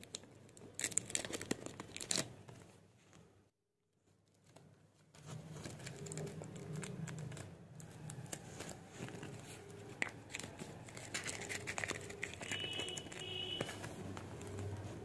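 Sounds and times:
plastic bag and paper crinkling: 0.0s - 2.8s, 4.4s - 15.0s.

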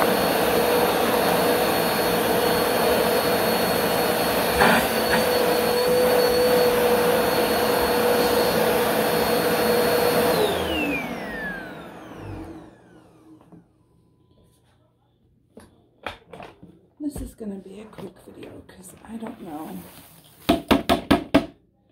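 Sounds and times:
vacuum motor winding down: 0.0s - 13.6s
vacuum cleaner whine: 0.0s - 14.8s.

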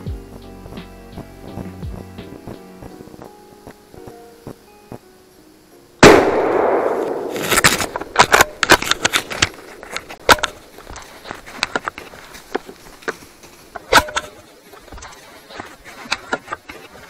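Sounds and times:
rifle shot: 6.0s - 9.6s
gear clicking and clattering: 7.4s - 17.0s.

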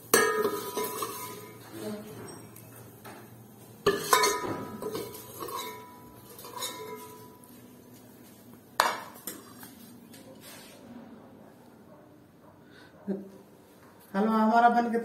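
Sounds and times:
spoon clinking against metal pot: 0.1s - 1.6s, 3.8s - 7.5s.

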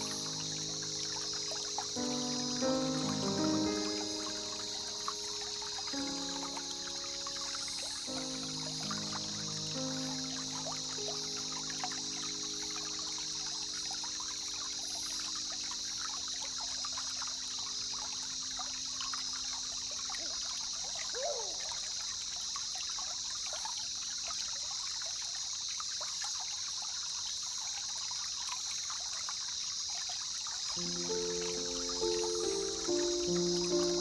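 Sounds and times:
steady high hiss: 0.0s - 21.6s, 30.7s - 34.0s
water trickling and lapping: 0.0s - 34.0s.

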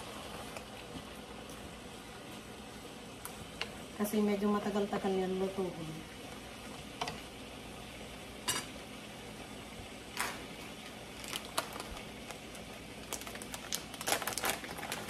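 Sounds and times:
plastic bag crinkling: 11.1s - 15.0s.

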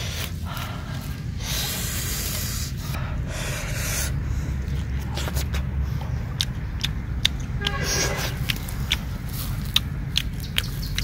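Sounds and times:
low rumble: 0.0s - 11.0s
chewing clicks: 4.6s - 11.0s.

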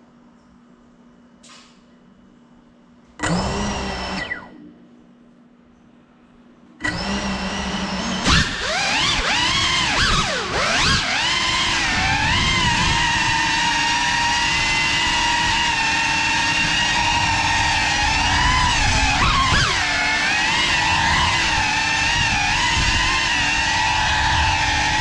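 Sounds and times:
drone motors whining: 3.2s - 4.8s, 6.8s - 25.0s.

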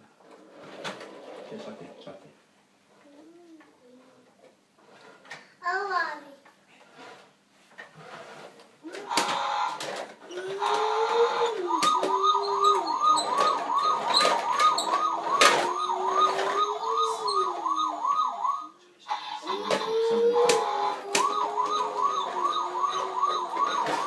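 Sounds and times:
toy warbling siren: 8.9s - 24.0s
rising and falling tone: 10.8s - 18.7s, 20.8s - 24.0s.

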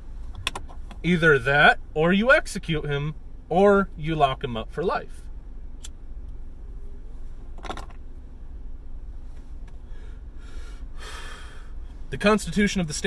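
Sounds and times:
steady low hum: 0.0s - 13.0s
breathy puff of exhaling: 9.8s - 11.8s.

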